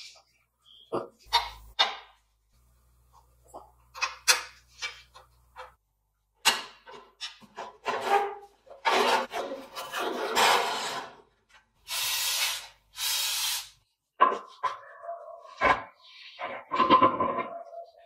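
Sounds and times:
aerosol spray hissing: 0:11.9 - 0:13.8.

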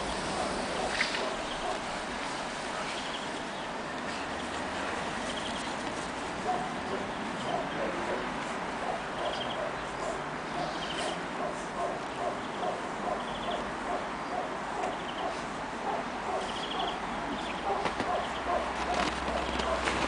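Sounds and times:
dog yipping: 0:17.7 - 0:19.9.

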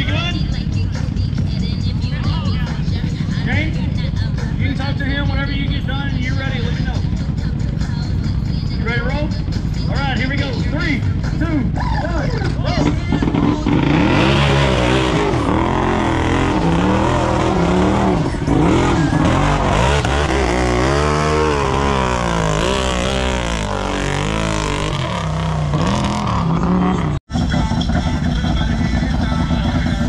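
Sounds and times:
engine revving hard: 0:13.2 - 0:27.2.

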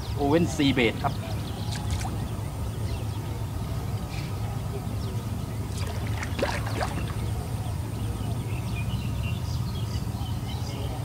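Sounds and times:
steady low rumble: 0:00.0 - 0:11.0
fish splashing at water surface: 0:05.7 - 0:07.3.

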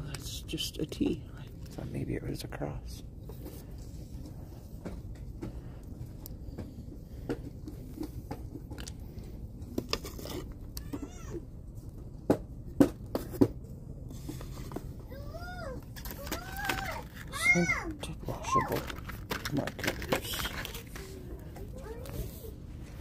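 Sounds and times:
steady low hum: 0:00.0 - 0:16.3.

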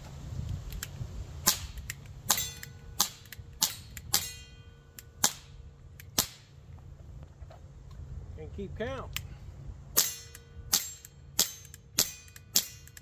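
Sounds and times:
air revolver shots cracking: 0:01.4 - 0:04.5, 0:05.2 - 0:06.5, 0:09.9 - 0:13.0
steel target ringing: 0:02.3 - 0:05.3, 0:10.0 - 0:13.0.

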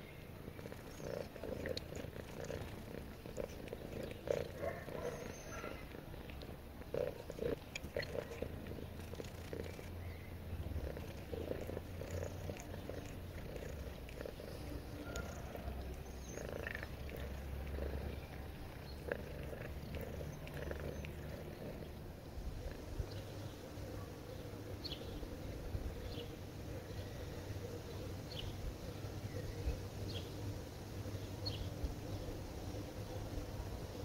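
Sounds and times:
cat purring: 0:00.0 - 0:28.5
soft licking clicks: 0:00.5 - 0:22.0.

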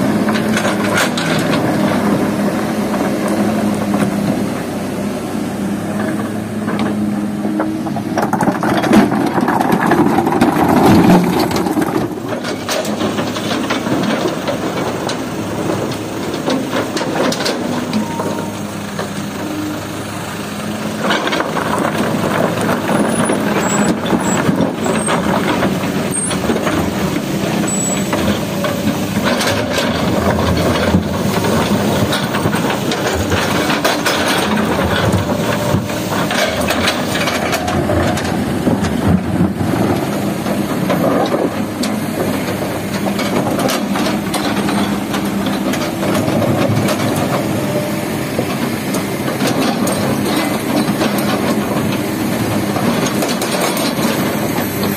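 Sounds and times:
excavator diesel engine running: 0:00.0 - 0:54.9
rock clattering and knocking: 0:08.0 - 0:14.0.

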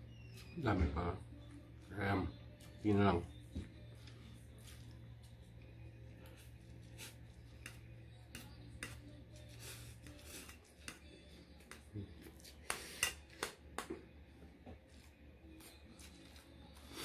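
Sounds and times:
chewing: 0:14.8 - 0:17.0.

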